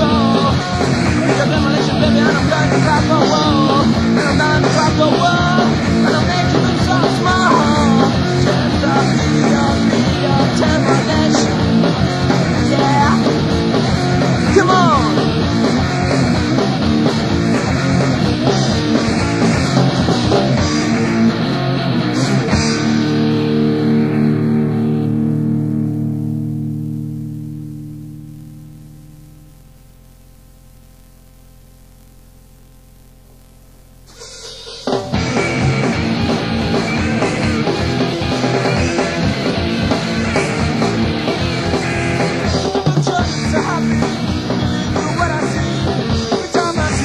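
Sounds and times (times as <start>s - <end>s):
fast driving drums: 0.0s - 23.7s, 33.9s - 47.0s
bass guitar: 0.0s - 47.0s
distorted electric guitar: 0.0s - 47.0s.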